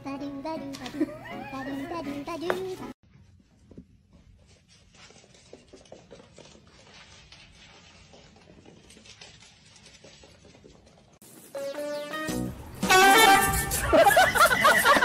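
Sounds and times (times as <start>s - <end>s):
paws scratching on hardwood floor: 3.2s - 11.5s.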